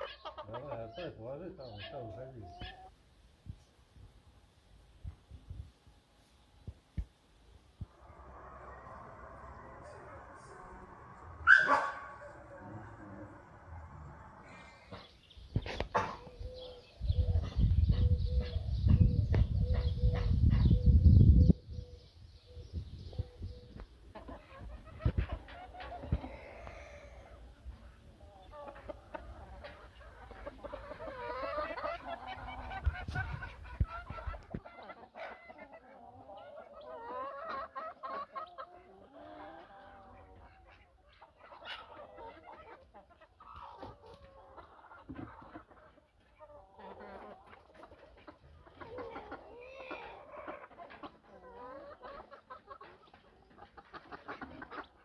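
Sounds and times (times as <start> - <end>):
low microphone rumble: 7.8 - 14.8
animals calling in high calls: 8.0 - 13.5.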